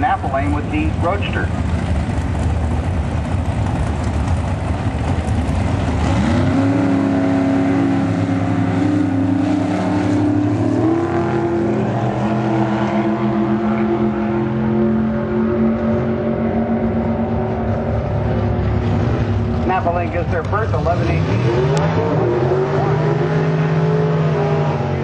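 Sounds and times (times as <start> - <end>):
drag racing car engines: 0.0 - 25.0.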